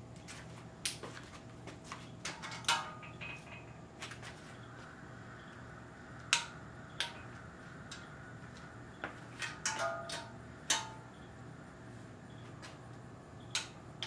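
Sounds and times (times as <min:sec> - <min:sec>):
metal clinks: 0:02.4 - 0:03.8.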